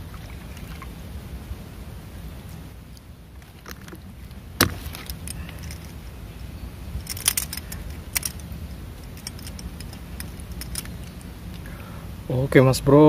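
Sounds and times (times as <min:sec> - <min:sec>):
steady low rumble: 0:00.0 - 0:13.0
fishing gear clicking and jingling: 0:03.4 - 0:06.1, 0:06.9 - 0:11.3.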